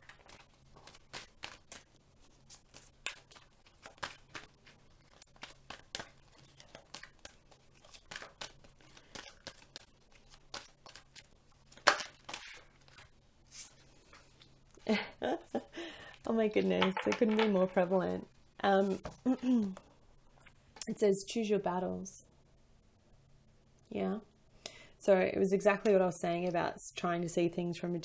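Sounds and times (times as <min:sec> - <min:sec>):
cards being shuffled: 0:00.0 - 0:13.8.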